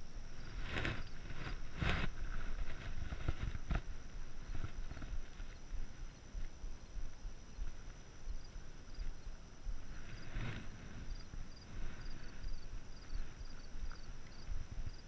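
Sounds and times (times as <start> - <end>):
wind on microphone: 0.0 - 15.0
faint high ticks: 12.5 - 15.0.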